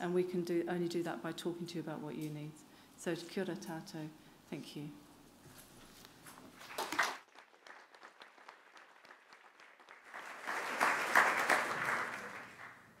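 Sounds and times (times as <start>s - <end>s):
audience applauding: 6.6s - 13.0s.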